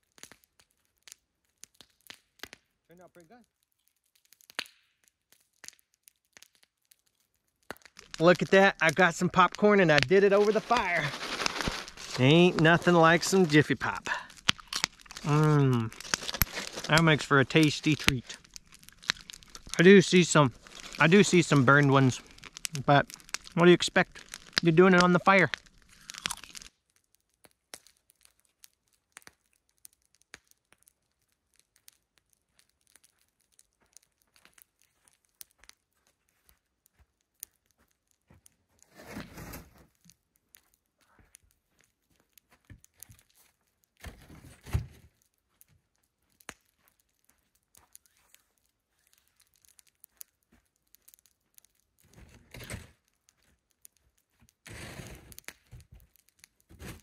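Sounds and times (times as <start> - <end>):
foil pan crinkling and rustling: 7.8 - 26.7, 37.8 - 57.0.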